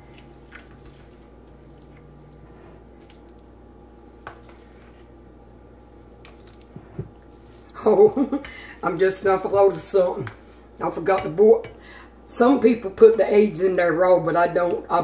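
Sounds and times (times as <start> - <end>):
wet scooping and plopping: 0.0 - 2.1, 3.0 - 3.6, 6.2 - 7.8
low steady hum: 0.0 - 15.0.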